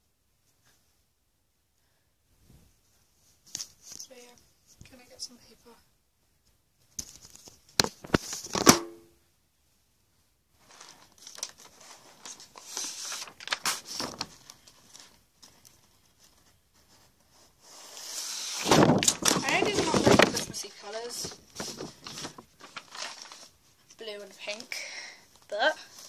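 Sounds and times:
paper rustling and crinkling: 7.0 - 8.7, 10.6 - 24.6.

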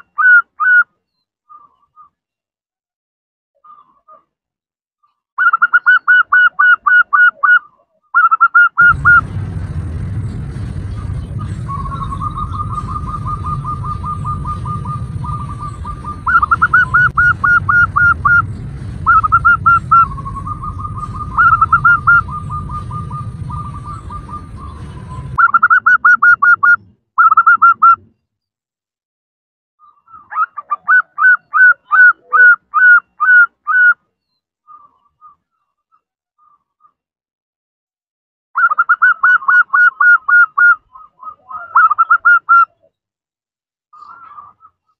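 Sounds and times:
dove calling with staccato notes: 5.4 - 7.6, 8.2 - 9.2, 10.7 - 28.1, 30.1 - 34.0, 38.6 - 42.9, 44.0 - 44.9.

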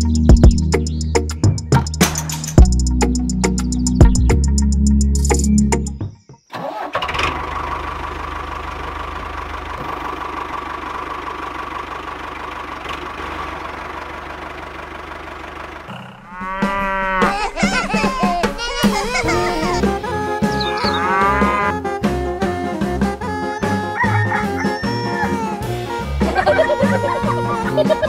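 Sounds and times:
cow mooing: 16.2 - 17.5, 20.5 - 21.8.

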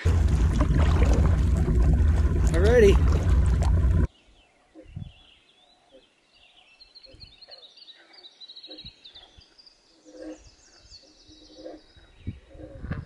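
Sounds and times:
soft low thumps: 0.0 - 4.1
songbirds chirping and trilling: 2.2 - 13.0.

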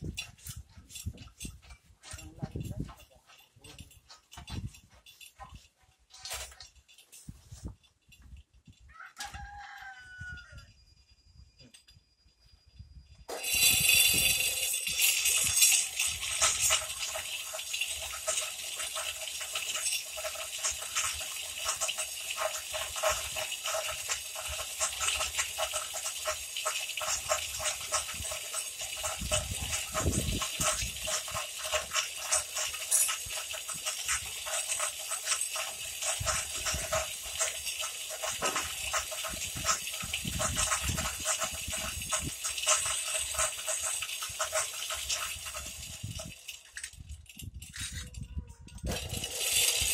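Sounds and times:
electric winch clattering: 13.3 - 48.0, 48.8 - 49.9.

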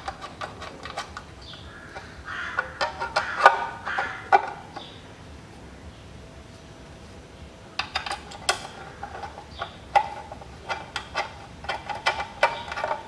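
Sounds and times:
light clicks and metallic knocks: 7.8 - 13.0.

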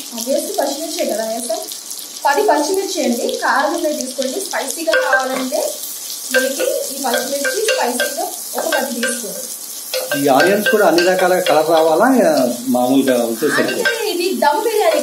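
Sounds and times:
onions sizzling in oil: 0.0 - 15.0
spatula knocking against pan: 4.9 - 5.6, 6.3 - 9.4, 10.0 - 15.0.

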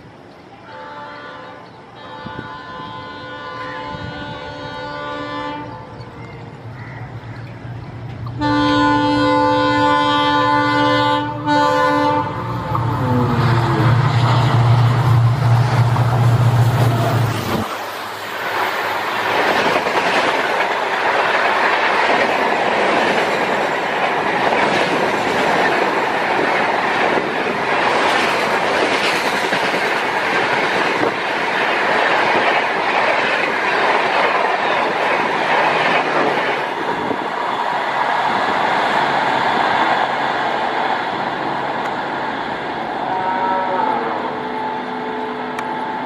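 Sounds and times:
diesel locomotive hum: 0.0 - 46.0
train coaches rushing past: 0.0 - 46.0
train wheels clattering over rail joints: 18.8 - 37.2.

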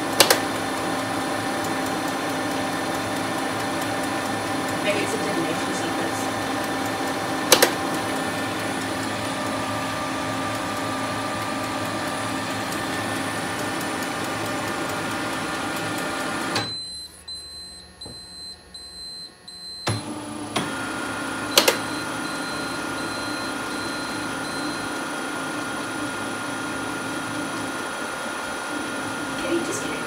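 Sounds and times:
printer motor and fan hum: 0.0 - 30.0
printer clicks: 0.1 - 0.5, 7.4 - 8.0, 21.6 - 21.9.

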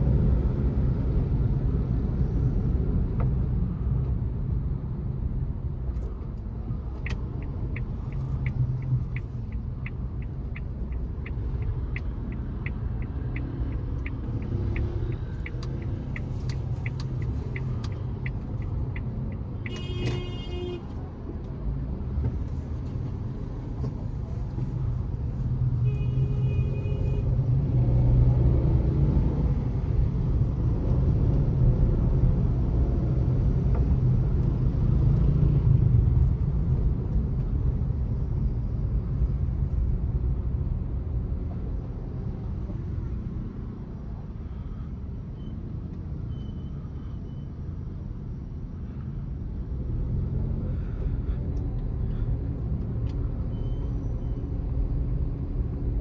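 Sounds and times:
car engine and road rumble: 0.0 - 56.0
car horn: 19.7 - 20.9, 25.8 - 27.3.

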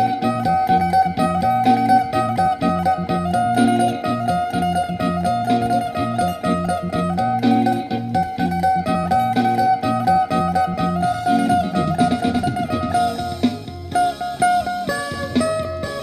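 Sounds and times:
low bass notes: 0.0 - 16.0
plucked lute melody: 0.0 - 16.0.

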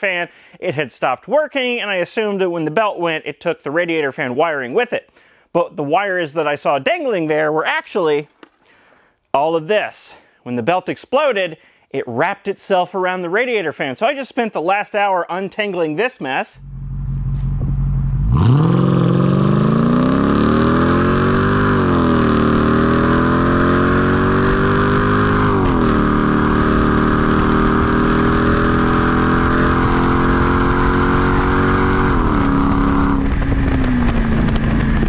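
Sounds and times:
car engine accelerating and upshifting: 16.6 - 35.0.

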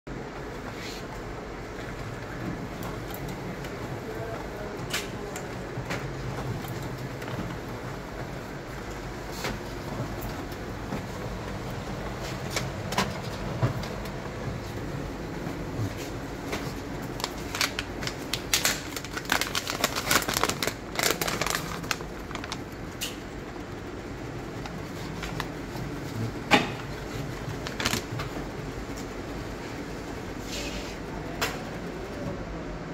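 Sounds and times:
steady background hum: 0.1 - 32.9
sharp crackles and clicks: 1.8 - 29.1
plastic pouch crinkling: 16.8 - 22.8, 27.5 - 28.3.

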